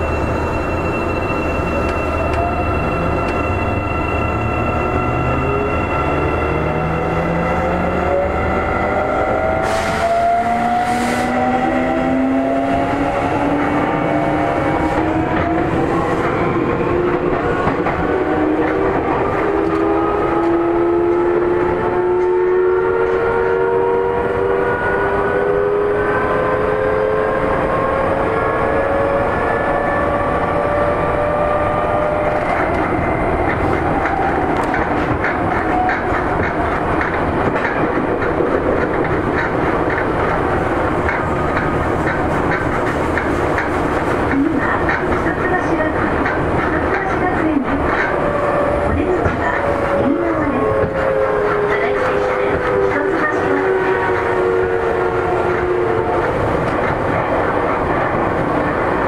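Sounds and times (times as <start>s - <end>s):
wheels clacking over rail joints: 32.6s - 48.2s.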